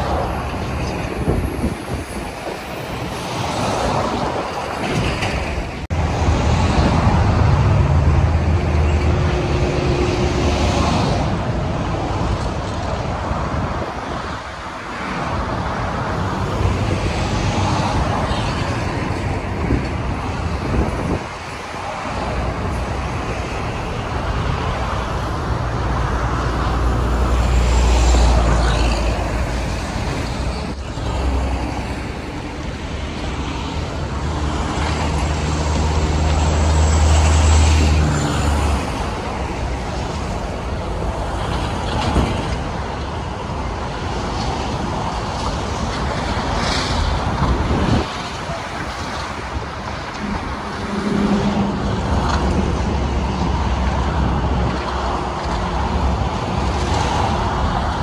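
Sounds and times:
passenger train on tracks: 0:00.0 - 0:58.0
road traffic noise: 0:00.0 - 0:58.0.

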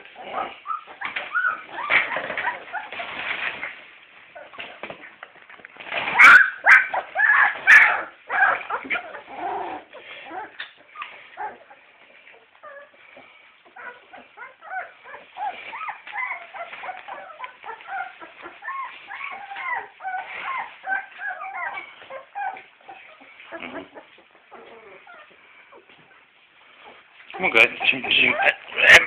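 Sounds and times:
puppies squeaking and whimpering: 0:00.0 - 0:04.9, 0:05.8 - 0:29.0.

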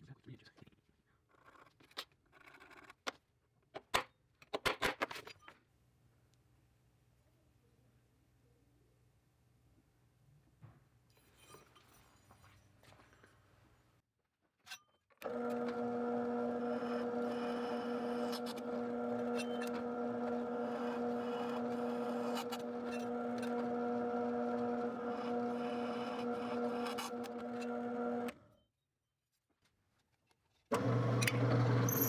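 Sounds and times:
drill press motor humming: 0:15.2 - 0:28.4, 0:30.7 - 0:32.0.

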